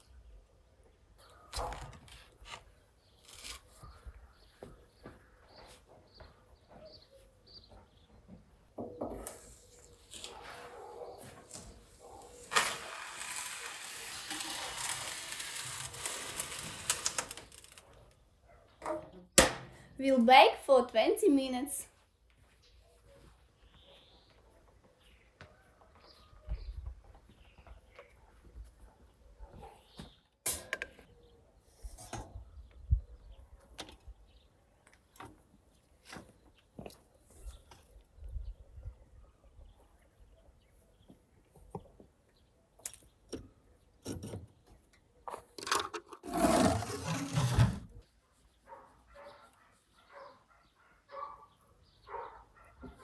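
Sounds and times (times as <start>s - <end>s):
metal tray scraping on stone: 12.3s - 17.4s, 46.2s - 47.9s.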